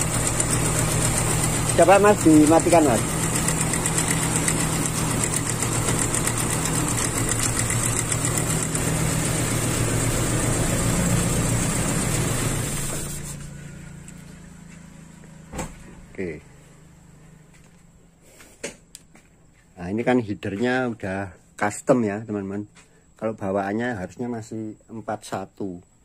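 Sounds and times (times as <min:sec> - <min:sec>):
car engine idling unevenly: 0:00.0 - 0:13.3.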